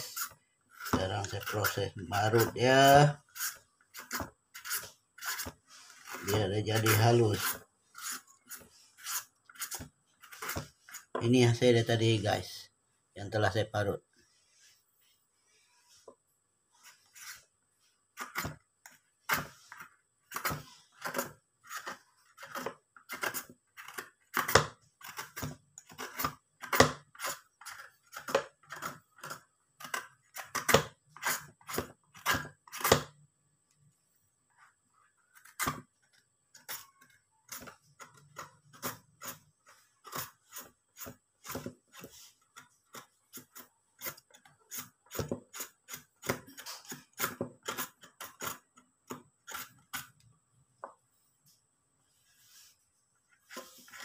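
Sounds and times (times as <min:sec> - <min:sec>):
peeler scraping papaya: 0:00.0 - 0:11.2.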